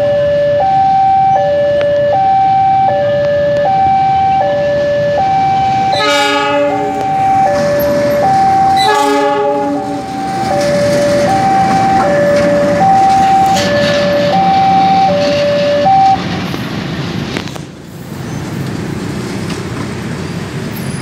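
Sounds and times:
level-crossing alarm two-tone: 0.0 - 16.2
locomotive engine running: 2.8 - 20.8
train horn blasts: 5.9 - 10.6.

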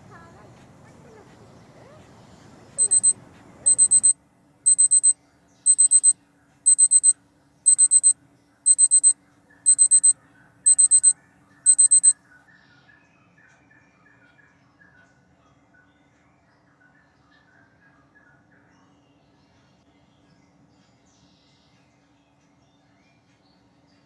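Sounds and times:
alarm clock beeping: 2.8 - 4.1, 4.7 - 5.1, 5.7 - 6.1, 6.7 - 7.1, 7.7 - 8.1, 8.7 - 9.1, 9.7 - 10.1, 10.7 - 11.1, 11.7 - 12.1.

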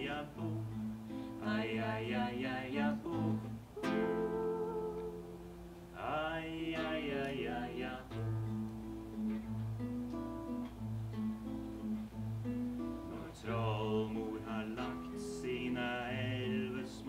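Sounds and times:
acoustic guitar: 0.0 - 17.0
person singing lullaby: 3.1 - 5.4.

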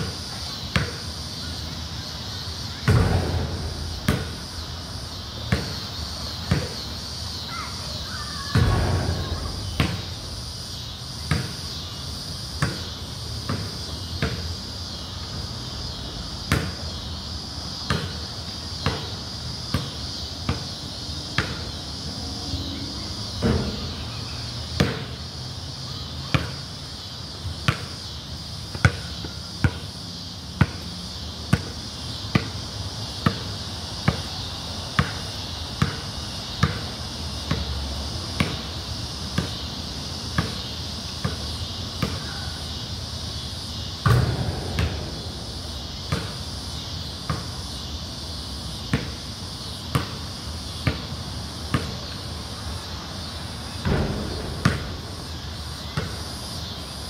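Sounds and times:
high insect drone: 0.0 - 57.0
basketball bouncing on concrete: 0.7 - 1.0, 2.7 - 4.6, 5.4 - 6.8, 8.5 - 10.2, 11.2 - 11.7, 12.6 - 14.5, 16.4 - 17.0, 17.8 - 20.8, 21.4 - 21.7, 24.8 - 25.1, 31.5 - 32.6, 33.2 - 34.4, 35.0 - 37.8, 38.4 - 38.8, 40.4 - 42.5, 44.0 - 45.2, 46.0 - 46.4, 47.3 - 47.6, 48.9 - 49.2, 49.9 - 50.2, 50.8 - 52.1, 53.8 - 56.8.

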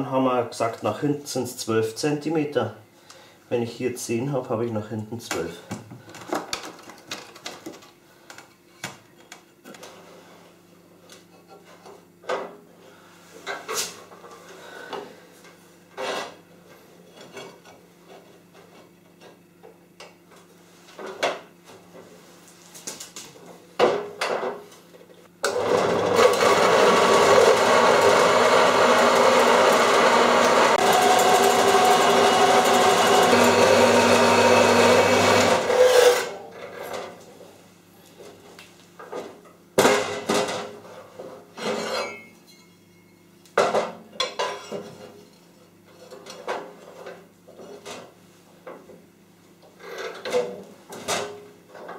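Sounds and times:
bandsaw cutting steel: 25.5 - 36.4.

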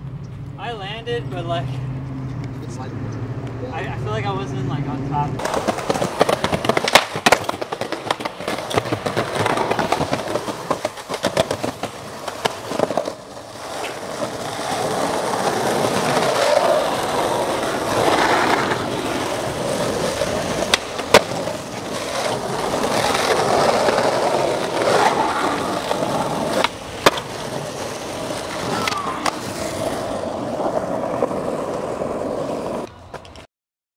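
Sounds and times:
skateboard wheels rolling: 5.2 - 33.5
skateboard pops and slaps: 5.4 - 14.3, 19.7 - 30.0.

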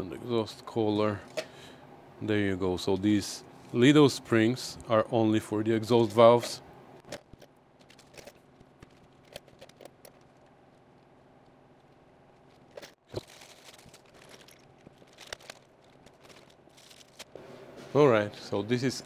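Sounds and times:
small metal parts clinking: 7.1 - 10.5, 12.4 - 17.4.

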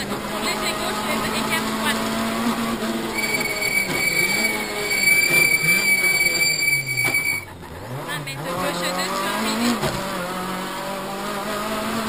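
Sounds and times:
rally car engine: 0.0 - 12.0
high-pitched squeal: 3.1 - 7.5.

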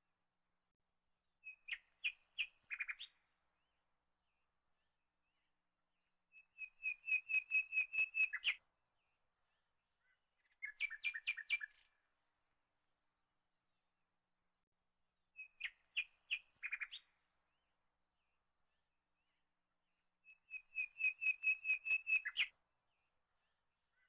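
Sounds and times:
bird chirping: 1.4 - 5.5, 6.3 - 12.1, 15.4 - 24.0.

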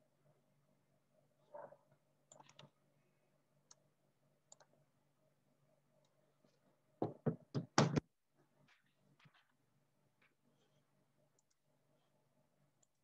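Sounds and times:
low steady hum: 0.0 - 7.0, 8.2 - 13.0
knock: 7.0 - 8.1.

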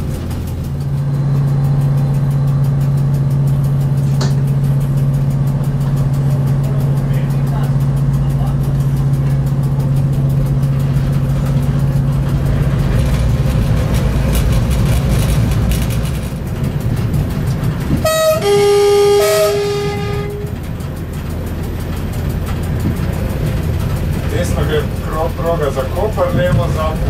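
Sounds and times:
train rumbling: 0.0 - 27.0
train horn: 18.0 - 20.7.

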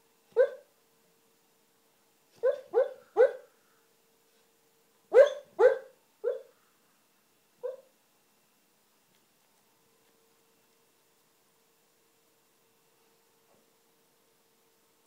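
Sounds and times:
dog barking in its sleep: 0.3 - 0.7, 2.4 - 3.6, 5.1 - 6.6, 7.6 - 7.9.

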